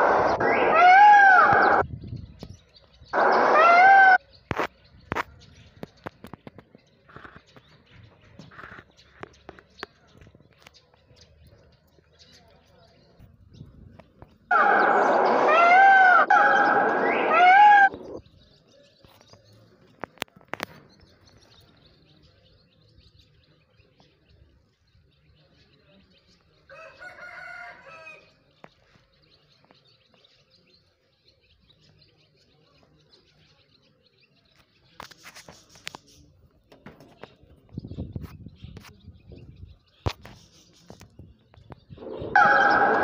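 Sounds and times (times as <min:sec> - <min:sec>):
peacock calling: 0:00.0 - 0:01.9, 0:03.1 - 0:05.3, 0:14.4 - 0:18.3, 0:41.9 - 0:43.0.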